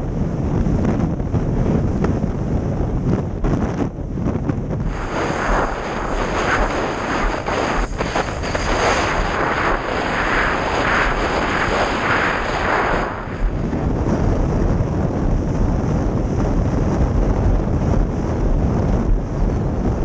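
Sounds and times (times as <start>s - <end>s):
wind buffeting microphone: 0.0s - 20.0s
thin high whine: 4.8s - 13.9s
water rushing under board: 4.8s - 13.9s.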